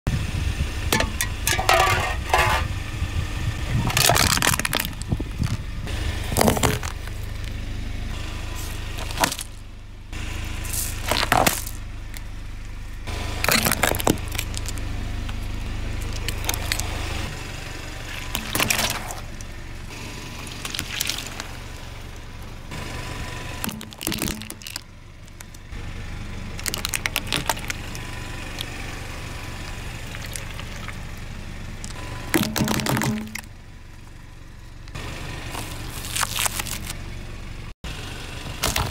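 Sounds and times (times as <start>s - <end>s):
low engine hum: 0.1s - 38.9s
drink can crackling under tyre: 3.8s - 5.7s, 6.3s - 7.6s, 13.4s - 15.4s, 26.6s - 28.7s
tyre crushing objects: 6.3s - 7.5s, 8.6s - 9.6s, 10.6s - 11.8s, 13.4s - 14.8s, 18.2s - 19.3s, 23.6s - 24.9s, 31.8s - 33.5s, 38.6s - 38.9s.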